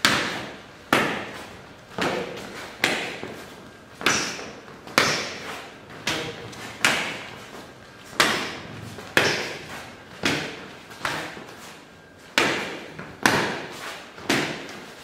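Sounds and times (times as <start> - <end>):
forearms slapping: 4.0 - 7.4, 8.1 - 11.4, 12.4 - 14.9.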